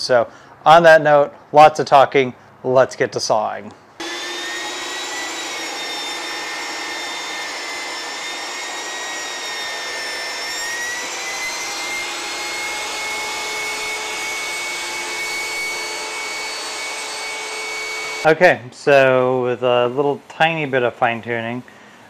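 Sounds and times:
table saw whining: 0:04.0 - 0:18.3.

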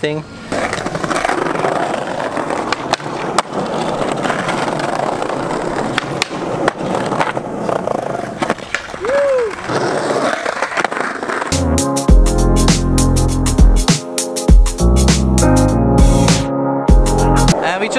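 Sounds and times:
skateboard wheels rolling on brick: 0:00.4 - 0:12.0
skateboard clicks and knocks: 0:00.5 - 0:11.6.

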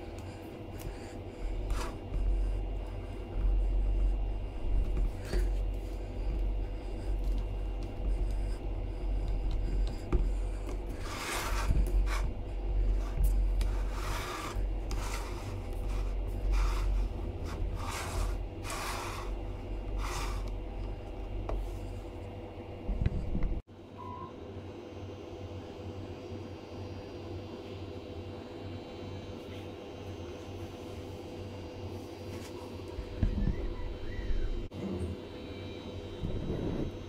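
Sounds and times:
plastic parts rubbing and scraping: 0:07.0 - 0:20.9.

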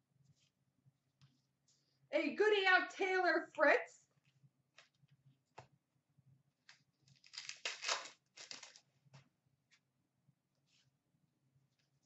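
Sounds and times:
cards rustling: 0:07.0 - 0:08.9.

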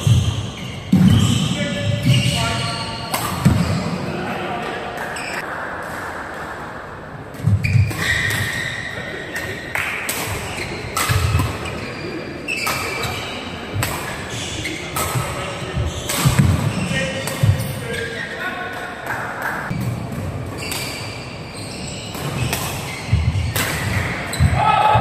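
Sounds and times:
shoes squeaking on court: 0:00.0 - 0:03.9, 0:05.0 - 0:05.4, 0:07.4 - 0:09.6, 0:10.3 - 0:18.4, 0:20.5 - 0:24.6
racket hitting shuttlecock: 0:03.1 - 0:03.9, 0:09.3 - 0:11.7, 0:13.8 - 0:14.2, 0:14.9 - 0:17.7, 0:22.1 - 0:24.6.

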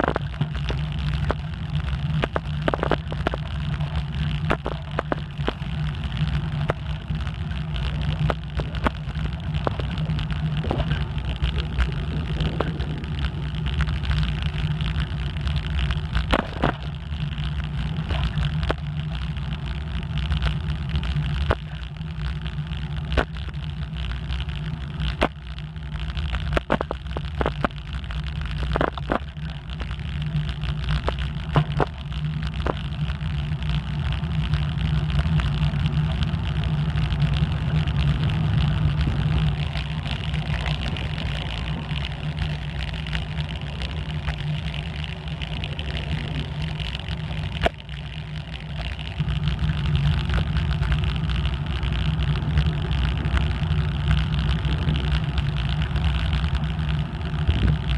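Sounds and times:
wind on microphone: 0:00.0 - 0:18.8, 0:35.0 - 0:47.8, 0:49.2 - 0:57.9
bicycle tyres rumbling on asphalt: 0:00.0 - 0:57.9
sharp clicks and rattles: 0:00.0 - 0:57.9.

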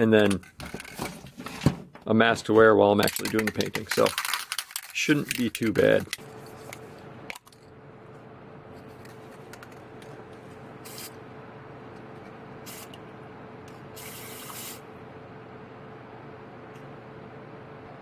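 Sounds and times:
box fan humming: 0:00.0 - 0:18.0
aerosol spray can hissing: 0:14.0 - 0:14.8.

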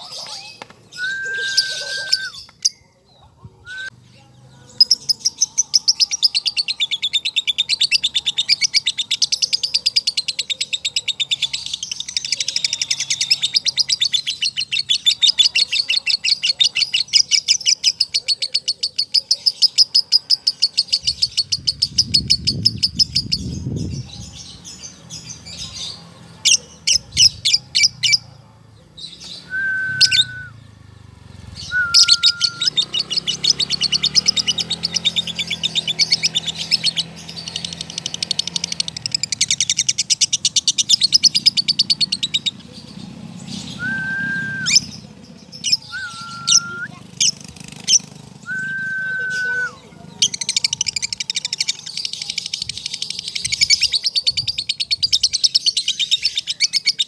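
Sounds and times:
lovebird chattering song: 0:00.0 - 0:02.9, 0:04.7 - 0:28.3, 0:31.4 - 0:43.9, 0:44.7 - 0:57.0
bird whistled notes: 0:00.9 - 0:02.5, 0:29.3 - 0:30.6, 0:31.6 - 0:33.0, 0:43.7 - 0:45.0, 0:45.7 - 0:47.0, 0:48.4 - 0:49.9.

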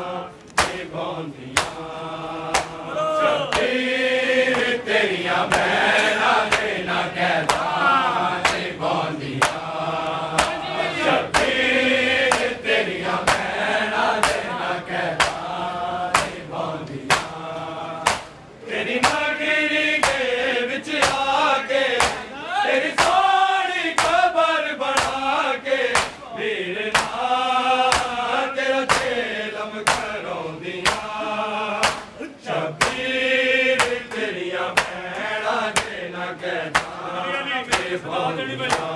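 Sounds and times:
hands slapping bare chests: 0:00.4 - 0:00.9, 0:01.5 - 0:01.9, 0:02.5 - 0:02.9, 0:03.5 - 0:03.8, 0:05.5 - 0:05.7, 0:06.4 - 0:06.8, 0:07.4 - 0:07.8, 0:08.4 - 0:08.8, 0:09.4 - 0:10.6, 0:11.3 - 0:11.6, 0:12.3 - 0:12.6, 0:13.2 - 0:13.6, 0:14.2 - 0:14.6, 0:15.2 - 0:15.5, 0:16.1 - 0:16.5, 0:17.1 - 0:17.4, 0:18.0 - 0:18.4, 0:19.0 - 0:19.3, 0:20.0 - 0:20.3, 0:21.0 - 0:21.3, 0:22.0 - 0:22.3, 0:23.0 - 0:23.2, 0:24.0 - 0:24.3, 0:24.9 - 0:25.3, 0:25.9 - 0:26.2, 0:26.9 - 0:27.2, 0:27.9 - 0:29.2, 0:29.8 - 0:30.2, 0:30.8 - 0:31.2, 0:31.8 - 0:32.2, 0:32.8 - 0:33.1, 0:33.8 - 0:36.0, 0:36.7 - 0:37.1, 0:37.7 - 0:38.0, 0:38.7 - 0:38.9
man chanting a lament: 0:02.7 - 0:03.8, 0:37.0 - 0:38.9.

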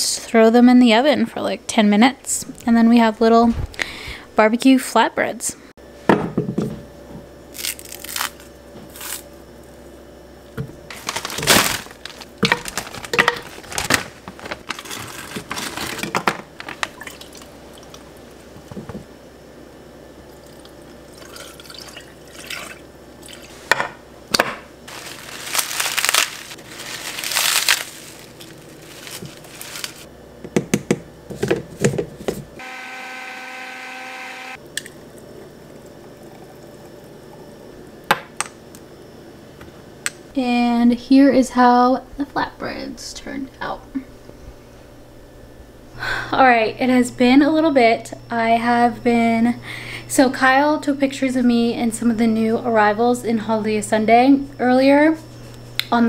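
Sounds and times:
blender motor whine: 0:32.6 - 0:34.6.

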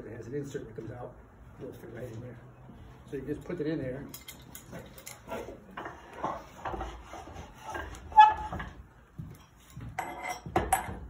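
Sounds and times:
metal handling clatter: 0:04.1 - 0:06.4.

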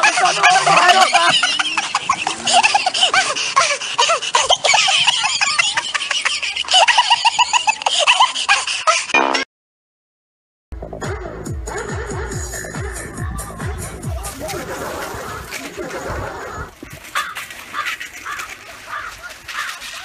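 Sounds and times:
high-pitched laughter: 0:00.0 - 0:09.4.

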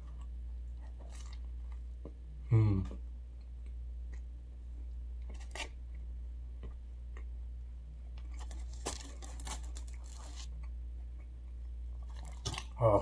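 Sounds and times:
person chewing: 0:00.0 - 0:02.2, 0:08.0 - 0:12.8
low steady hum: 0:00.0 - 0:13.0
pizza crackling and tearing: 0:05.3 - 0:05.7, 0:08.3 - 0:10.6, 0:12.1 - 0:12.8.

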